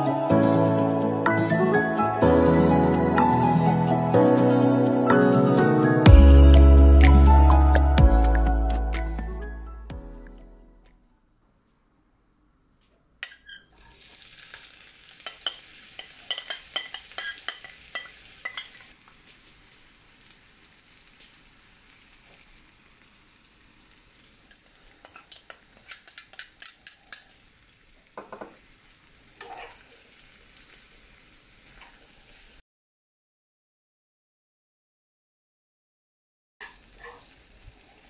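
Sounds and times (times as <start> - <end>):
metal spoon stirring in pan: 13.2 - 18.9, 24.4 - 27.5
onions sizzling in hot oil: 13.8 - 32.6, 36.6 - 38.0.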